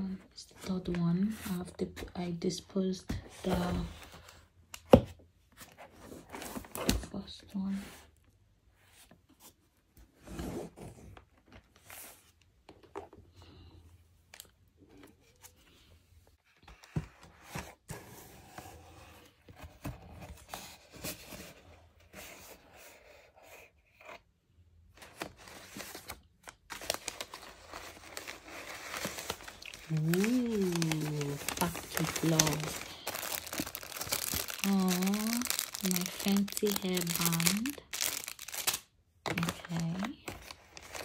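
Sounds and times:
packaging rustling and crinkling: 25.0s - 41.0s.

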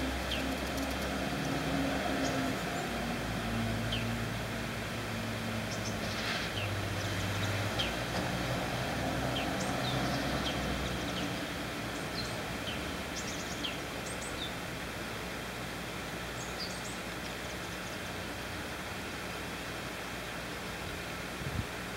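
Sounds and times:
small birds chirping: 0.0s - 4.4s, 5.6s - 8.2s, 9.1s - 14.8s, 16.2s - 19.6s.

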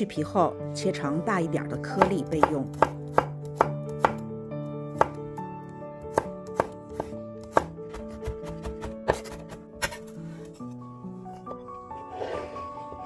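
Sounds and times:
soft background music: 0.0s - 13.0s
knife chopping garlic on board: 2.0s - 4.2s, 5.0s - 5.2s, 6.1s - 10.0s.

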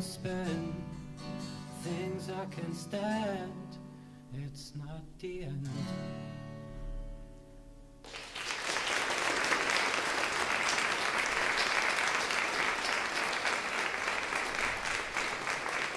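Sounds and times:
audience applauding: 8.0s - 15.9s.

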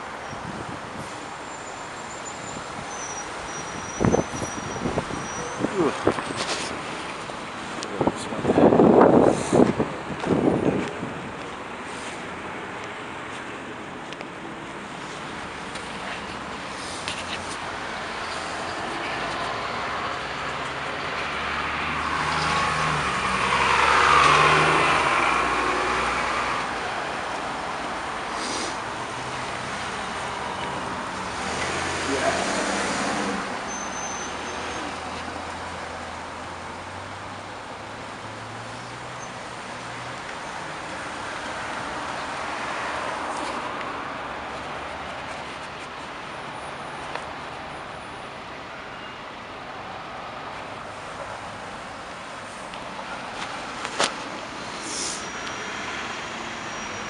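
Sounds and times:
street traffic hiss: 0.0s - 57.0s
car passing close: 15.4s - 45.1s
bus engine pulling past: 17.9s - 43.6s, 52.4s - 57.0s.

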